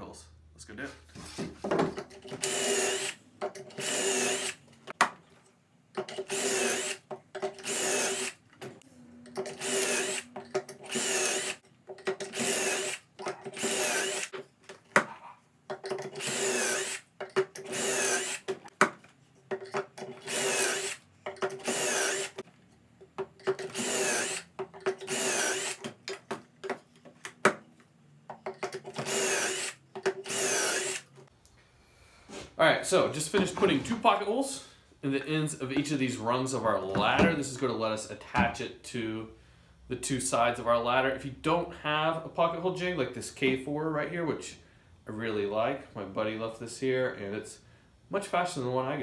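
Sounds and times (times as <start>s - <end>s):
cordless drill boring into wood: 2.4s - 3.2s, 3.8s - 4.6s, 6.3s - 7.0s, 7.6s - 8.4s, 9.6s - 10.3s, 10.9s - 11.6s, 12.3s - 13.0s, 13.6s - 14.3s, 16.2s - 17.0s, 17.7s - 18.5s, 20.2s - 21.0s, 21.6s - 22.4s, 23.7s - 24.5s, 25.1s - 25.8s, 29.0s - 31.1s.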